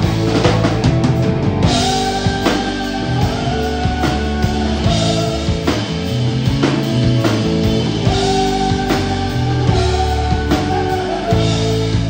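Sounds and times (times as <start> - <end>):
drums: 0.0 - 12.0
electric guitar: 0.0 - 12.0
man singing: 1.7 - 6.2, 7.3 - 12.0.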